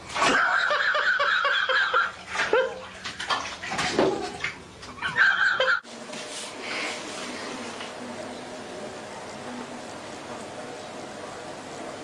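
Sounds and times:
bathwater splashing: 0:00.0 - 0:08.0.

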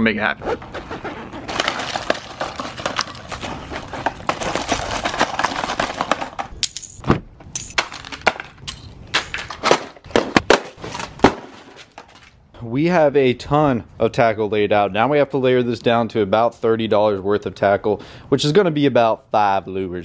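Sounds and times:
plastic packages rattling: 0:01.4 - 0:07.0
plastic packages clattering on concrete: 0:01.5 - 0:07.0, 0:07.6 - 0:12.4.

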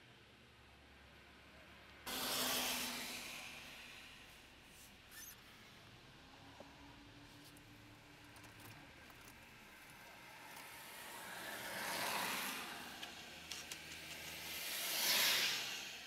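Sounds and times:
tyres hissing on wet road: 0:02.1 - 0:05.3, 0:10.2 - 0:16.0.

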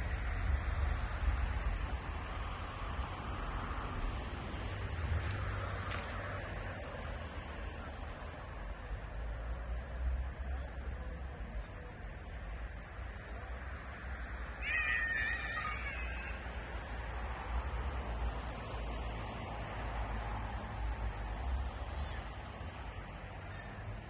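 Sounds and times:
wavering animal call: 0:14.6 - 0:16.4.

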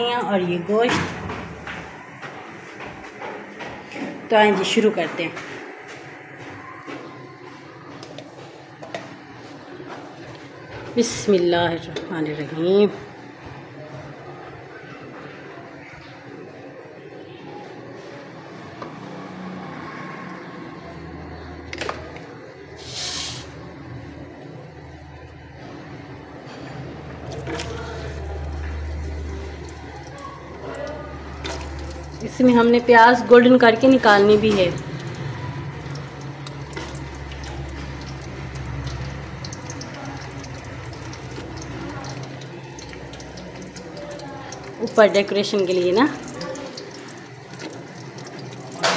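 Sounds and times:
onions sizzling in hot oil: 0:22.8 - 0:23.5
short hiss: 0:22.8 - 0:23.5
spatula moving through oil: 0:22.8 - 0:23.5, 0:31.4 - 0:32.6, 0:34.4 - 0:48.9.

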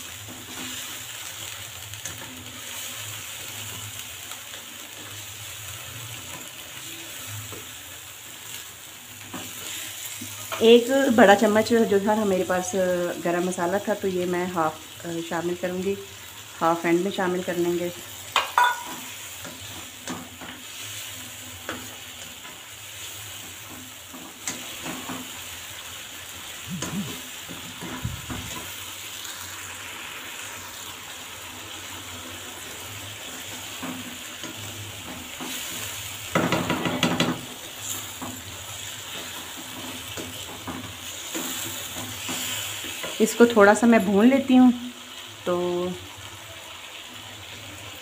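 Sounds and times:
chicken sizzling in a wok: 0:00.0 - 0:48.0
spatula scraping a pan: 0:33.4 - 0:43.5.

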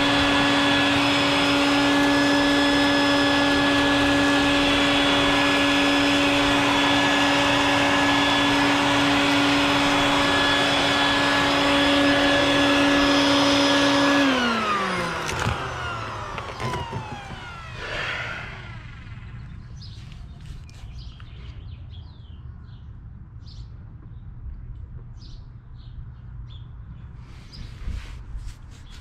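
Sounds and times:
vacuum motor winding down: 0:00.0 - 0:20.3
shop vacuum running: 0:00.0 - 0:20.8.

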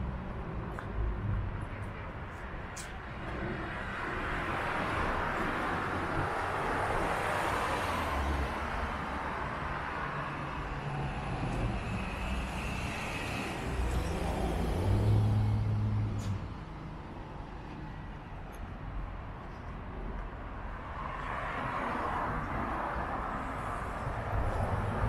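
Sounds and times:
cars driving by: 0:00.0 - 0:25.0.

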